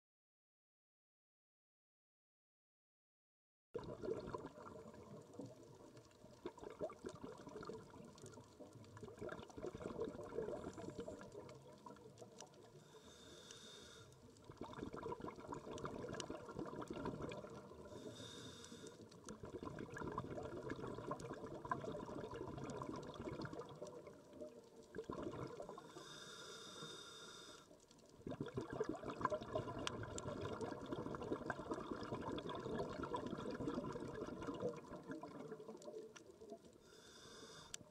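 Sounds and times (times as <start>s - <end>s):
exhaled bubbles crackling: 3.8s - 26.9s, 27.6s - 37.9s
regulator hissing inhalations: 12.8s - 14.1s, 18.0s - 19.1s, 25.9s - 27.7s, 36.8s - 37.9s.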